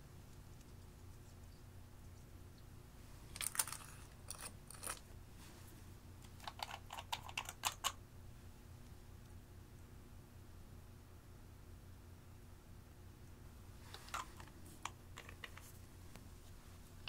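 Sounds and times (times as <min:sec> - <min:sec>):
makeup containers clicking: 0:06.4 - 0:08.0, 0:14.0 - 0:15.7.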